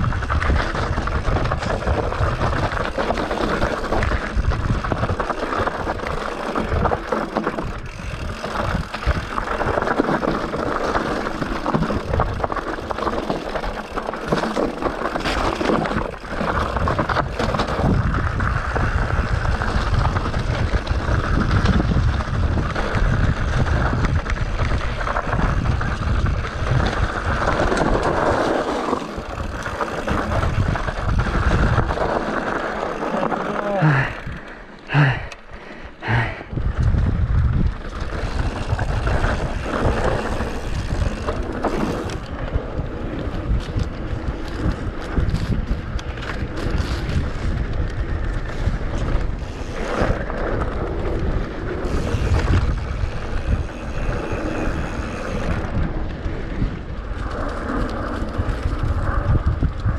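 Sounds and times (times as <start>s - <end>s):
wind buffeting microphone: 0.0s - 10.6s, 16.0s - 32.6s, 36.0s - 59.9s
bike knocking on rough ground: 0.0s - 34.2s
bike tyre noise: 0.0s - 59.9s.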